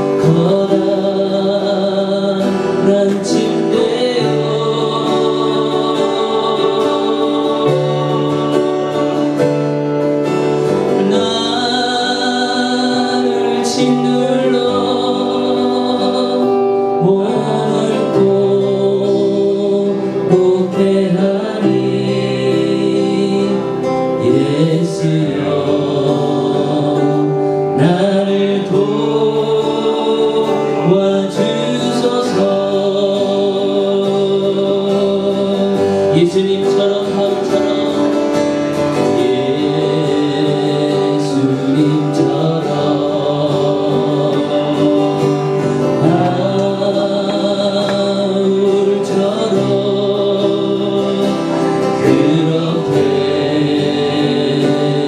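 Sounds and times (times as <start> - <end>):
acoustic guitar strumming: 0.0 - 55.0
man singing: 0.0 - 55.0.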